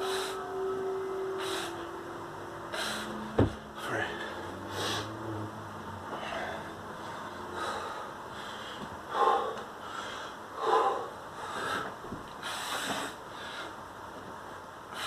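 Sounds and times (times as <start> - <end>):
man breathing hard: 0.0 - 0.5, 1.4 - 1.9, 2.7 - 5.2, 6.1 - 13.9.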